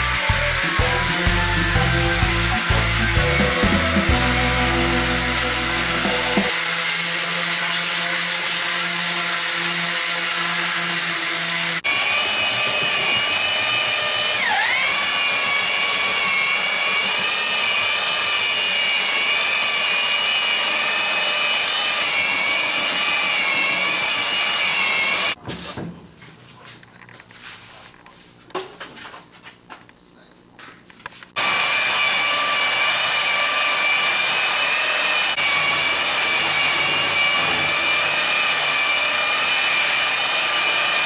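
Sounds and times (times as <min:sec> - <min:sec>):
orbital sander on wood: 0:00.0 - 0:25.4, 0:31.4 - 0:41.0
rectangular sander whining: 0:00.0 - 0:25.4, 0:31.4 - 0:41.0.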